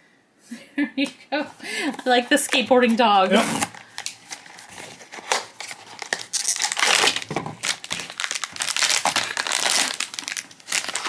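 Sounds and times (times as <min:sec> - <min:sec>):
foil bag crinkling: 0:03.2 - 0:11.0.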